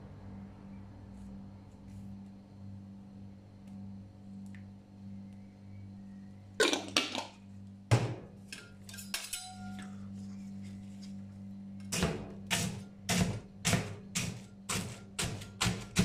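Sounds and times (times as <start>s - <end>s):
low hum: 0.0s - 13.0s
metal spatulas striking cold plate: 8.5s - 9.8s.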